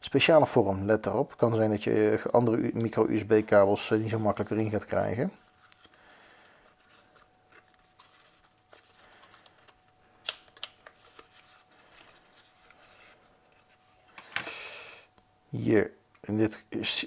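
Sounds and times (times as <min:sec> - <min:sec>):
packaging rustling: 0:05.5 - 0:14.5.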